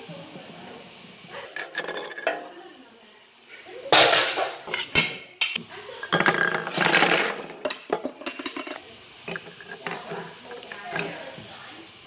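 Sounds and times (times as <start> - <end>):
plastic toys clattering: 1.4 - 2.5, 6.0 - 11.2.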